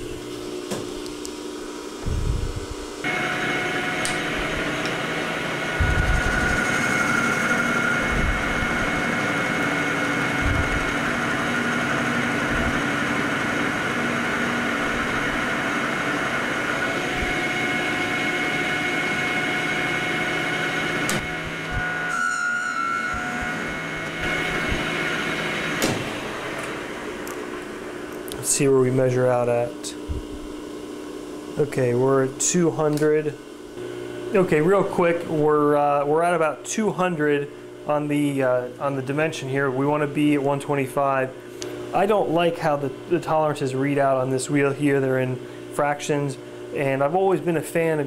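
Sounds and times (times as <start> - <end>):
lathe machine whine: 1.7 - 29.0
dull low thumps: 2.0 - 3.0, 5.8 - 6.6, 8.0 - 8.9, 10.4 - 11.0, 12.5 - 12.8, 30.0 - 30.5.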